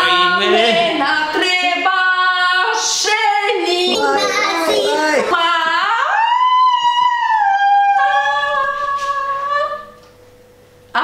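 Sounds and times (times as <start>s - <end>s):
woman singing high: 5.2s - 10.0s.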